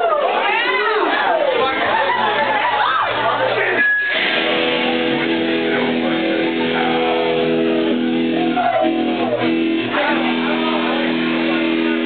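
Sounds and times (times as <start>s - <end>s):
bass guitar: 3.0s - 12.0s
electric guitar: 3.0s - 12.0s.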